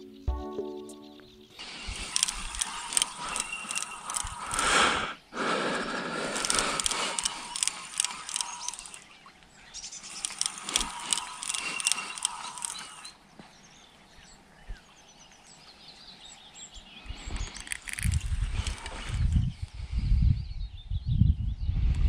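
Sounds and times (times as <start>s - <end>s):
birds chirping faintly: 0.0s - 22.0s
fishing reel clicking and whining: 1.6s - 5.0s, 6.2s - 9.1s, 10.0s - 13.2s, 17.5s - 19.0s.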